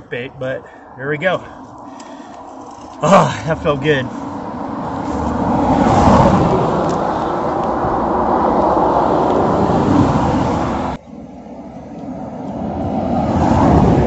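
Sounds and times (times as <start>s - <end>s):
car passing by: 3.0s - 14.0s.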